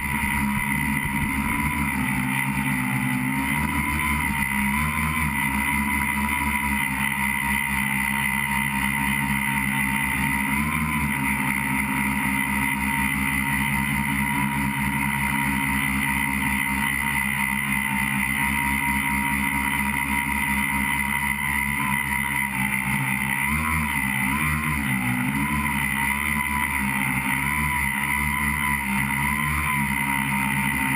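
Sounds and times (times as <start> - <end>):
drone motors buzzing with whine: 0.0 - 30.9.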